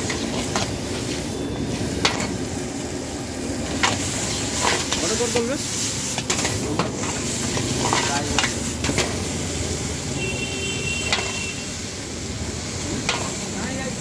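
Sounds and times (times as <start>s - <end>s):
ladle scraping wok: 0.0s - 2.6s, 3.6s - 10.1s, 11.0s - 11.6s, 12.9s - 13.6s
rice sizzling in wok: 0.0s - 14.0s.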